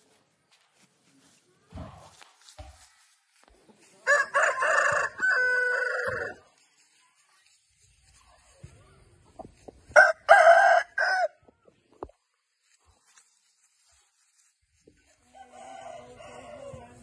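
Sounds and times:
rooster crowing: 0:04.1 - 0:06.4, 0:10.0 - 0:11.4, 0:15.3 - 0:16.9.

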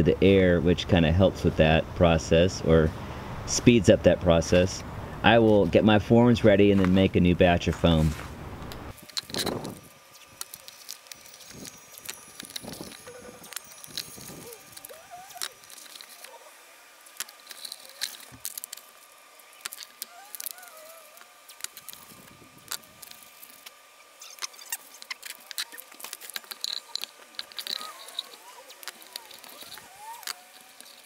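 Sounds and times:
tape pulled and torn: 0:09.0 - 0:16.4, 0:17.2 - 0:18.9, 0:19.6 - 0:31.0.

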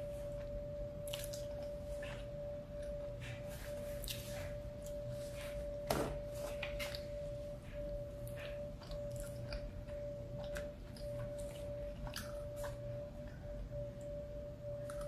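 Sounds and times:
steady high hum: 0:00.0 - 0:15.0
person chewing: 0:01.0 - 0:03.0, 0:08.2 - 0:13.5.

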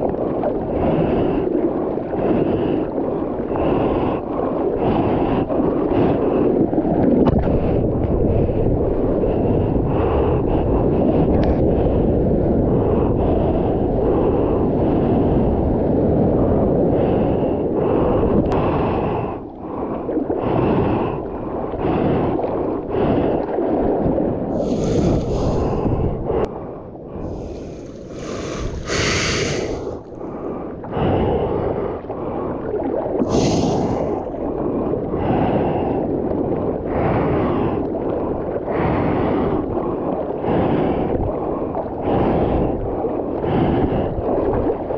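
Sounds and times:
water slapping and splashing: 0:00.0 - 0:14.9, 0:18.4 - 0:26.4, 0:27.1 - 0:31.0, 0:31.6 - 0:44.9
wind buffeting microphone: 0:00.0 - 0:44.9
surf wash: 0:18.6 - 0:26.4, 0:27.1 - 0:30.7, 0:32.0 - 0:44.9
heavy breathing close up: 0:24.5 - 0:32.5, 0:33.2 - 0:36.1, 0:40.4 - 0:42.8.

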